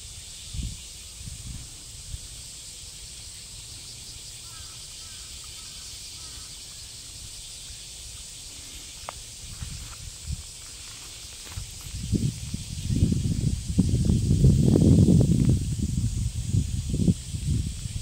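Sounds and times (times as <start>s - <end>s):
wind rumble on microphone: 0.0s - 2.5s, 8.8s - 18.0s
insects droning: 0.0s - 18.0s.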